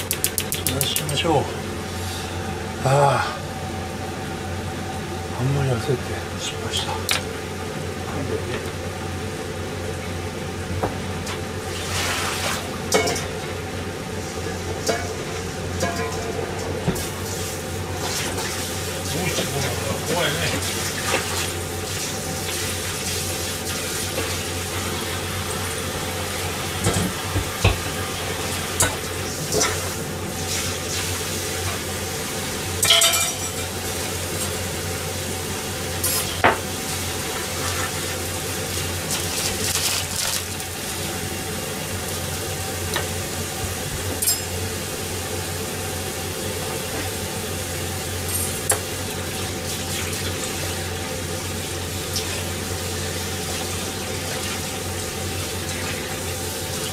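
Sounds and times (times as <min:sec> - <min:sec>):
constant low hum: 0:00.0 - 0:56.9
dishes and utensils clinking: 0:12.9 - 0:13.3, 0:15.8 - 0:16.4, 0:32.8 - 0:33.8, 0:44.2 - 0:44.6.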